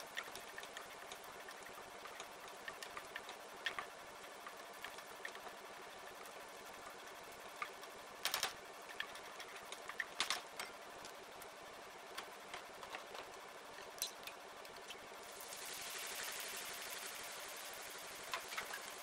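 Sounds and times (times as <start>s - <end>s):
small crackles: 0.0s - 19.0s
onion sizzling in oil: 15.0s - 19.0s.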